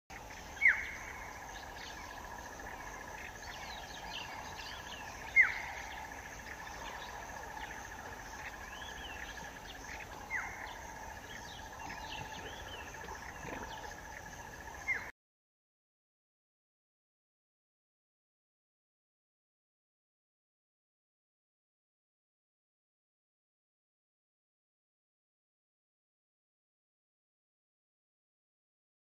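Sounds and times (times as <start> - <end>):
cricket-like insect trill: 0.1 - 15.1.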